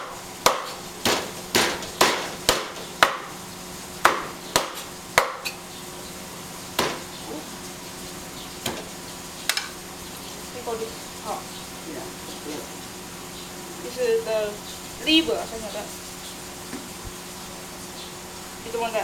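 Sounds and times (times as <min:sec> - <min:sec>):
cleaver chopping on wooden block: 0:00.4 - 0:03.4, 0:04.0 - 0:05.6, 0:06.8 - 0:07.1.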